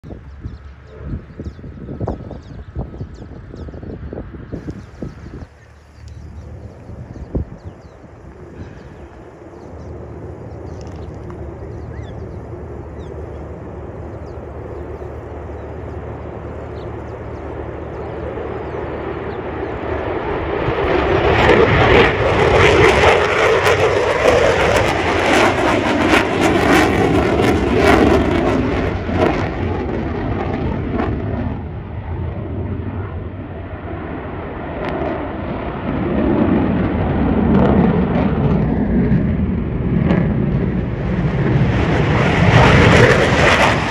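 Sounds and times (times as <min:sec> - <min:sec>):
jet engine roar: 0:00.0 - 0:43.9
jet crackle: 0:04.6 - 0:33.2, 0:34.4 - 0:43.9.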